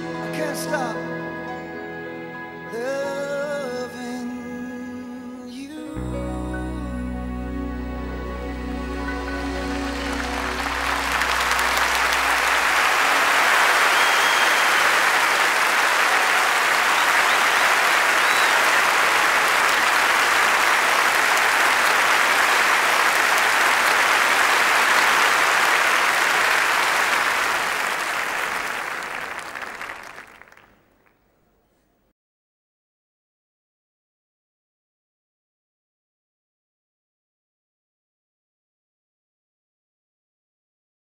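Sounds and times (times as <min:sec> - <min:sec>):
crowd applause: 0:08.9 - 0:31.1.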